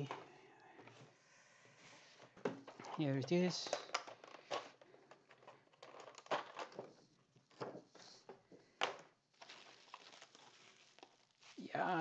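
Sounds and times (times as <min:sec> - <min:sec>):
bubble wrap crinkling: 0:09.1 - 0:12.0.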